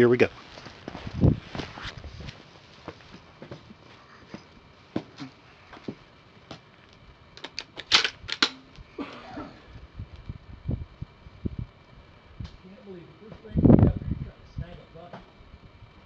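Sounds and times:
rustling: 0.3 - 4.5
rifle handling clicks: 7.4 - 8.6.

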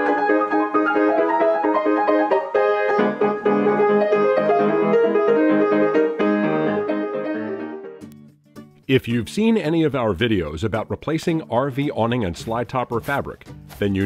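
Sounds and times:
piano intro music: 0.0 - 8.7.

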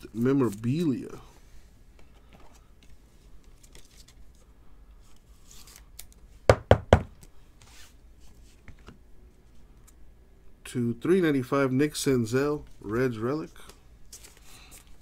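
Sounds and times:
cards sliding and rustling: 5.0 - 6.1, 13.6 - 15.0
sharp knocks on a table: 6.5 - 7.1.

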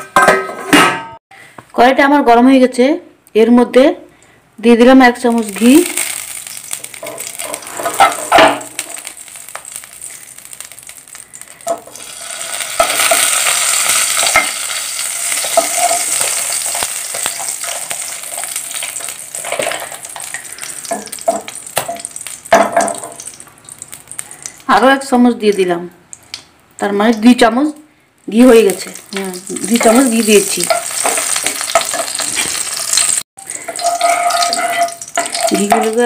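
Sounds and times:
ghee sizzling in a pan: 5.3 - 24.8, 28.3 - 36.0
wooden spatula scraping a pan: 7.0 - 9.0, 29.8 - 36.0.

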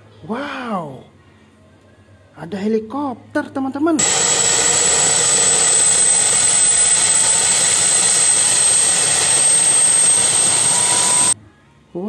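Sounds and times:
engine and rotor rush: 4.0 - 11.4
high-pitched turbine whine: 4.0 - 11.4.

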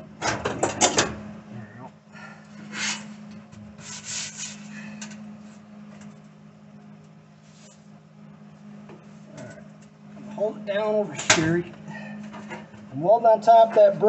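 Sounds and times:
steady low hum: 0.0 - 14.0
rustling and scraping on sheet metal: 3.8 - 5.0.

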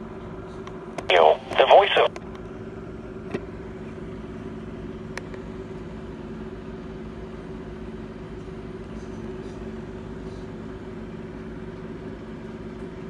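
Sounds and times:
low electrical hum: 1.1 - 2.2.

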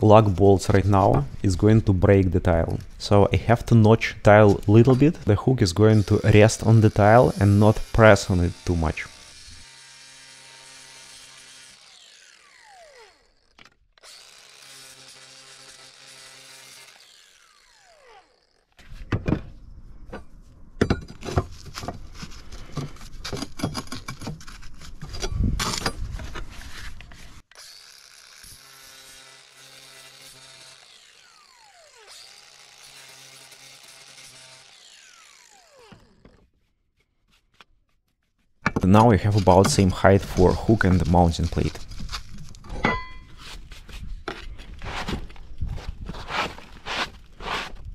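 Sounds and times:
angle grinder cutting concrete tile: 2.4 - 18.7, 27.4 - 36.4, 39.0 - 42.4
knocks and scraping: 18.8 - 27.4, 38.4 - 47.9.

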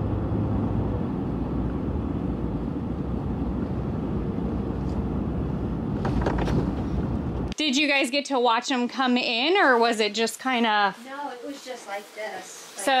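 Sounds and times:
vehicle rumbling on bumpy road: 0.0 - 7.5.

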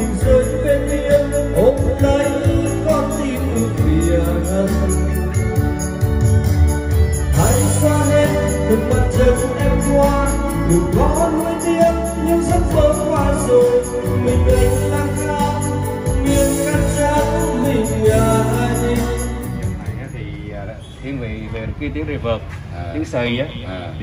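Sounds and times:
man singing into microphone: 0.0 - 6.0, 7.3 - 20.0
karaoke backing track: 0.0 - 24.0.

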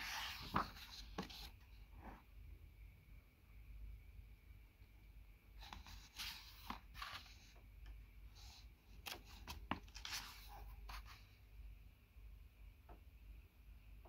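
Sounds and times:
book pages flipping: 0.0 - 1.6, 5.6 - 7.5, 8.9 - 11.2.

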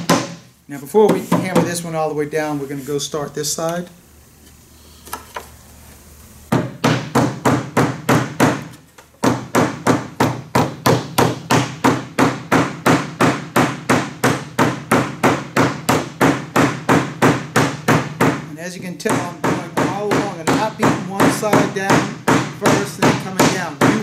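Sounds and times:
rubber mallet striking wood: 0.0 - 0.5, 6.5 - 18.5, 19.1 - 24.0.

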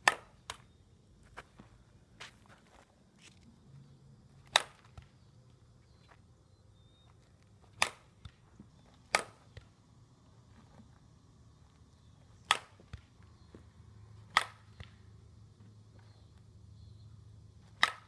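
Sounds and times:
bat hitting softball: 0.0 - 0.6, 4.4 - 5.0, 7.7 - 8.4, 9.1 - 9.7, 12.4 - 13.0, 14.2 - 15.0, 17.7 - 18.0.

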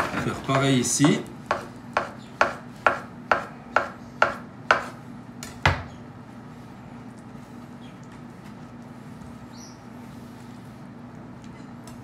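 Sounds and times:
knife chopping on cutting board: 1.0 - 5.0.

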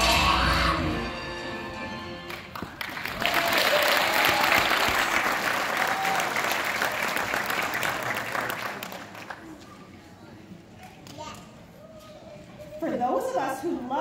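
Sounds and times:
music: 0.0 - 2.6
audience applauding: 2.3 - 9.6.

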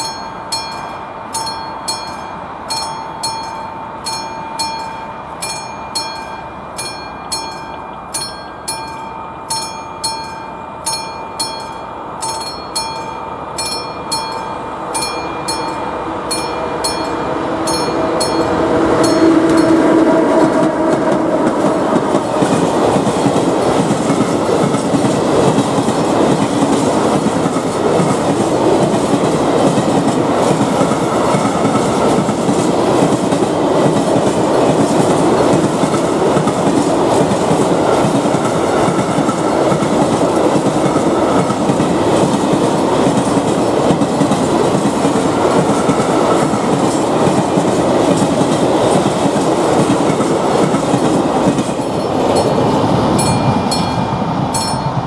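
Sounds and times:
train wheels rumbling on rails: 0.0 - 55.0
clickety-clack over rail joints: 16.9 - 55.0.

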